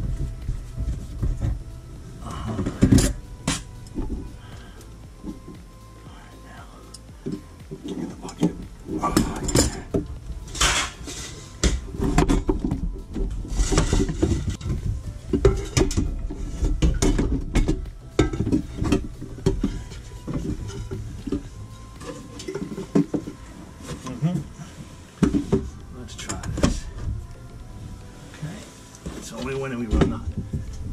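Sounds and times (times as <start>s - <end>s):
metallic clinks and knocks: 6.8s - 23.5s.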